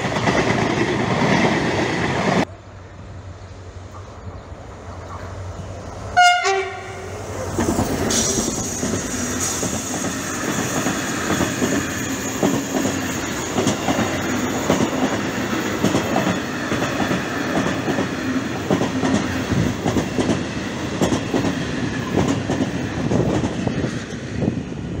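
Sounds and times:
train passing rumble: 0.0s - 25.0s
train horn blast: 6.2s - 7.2s
wheels clacking over rail joints: 7.3s - 24.3s.

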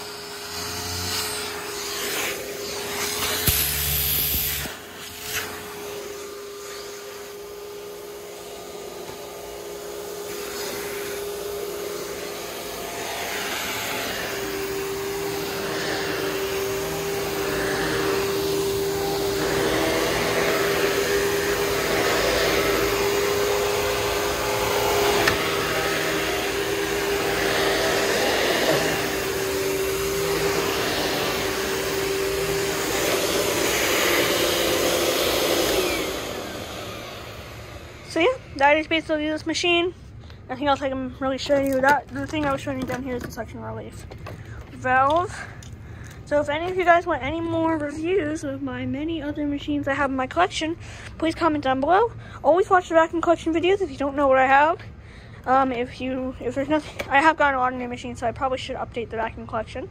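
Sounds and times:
upright vacuum cleaner running: 0.0s - 45.6s.

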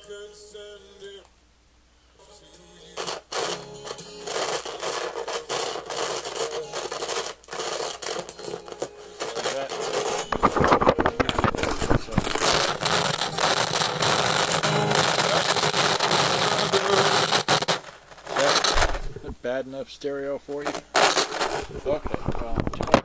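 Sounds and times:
scratchy cassette playback: 2.2s - 19.4s, 20.6s - 23.0s
loud crackling and thumps: 3.0s - 19.4s, 20.6s - 23.0s
person talking: 9.2s - 12.8s, 15.0s - 17.4s, 18.3s - 20.8s, 21.7s - 23.0s.

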